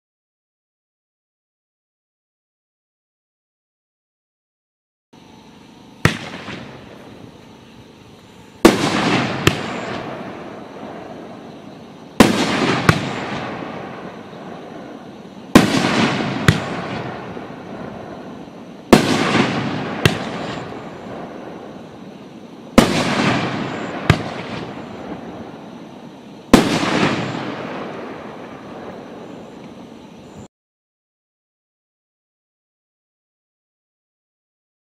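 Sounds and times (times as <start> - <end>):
fireworks bangs: 6.0 - 29.8
fireworks crackle and echo: 6.0 - 30.5.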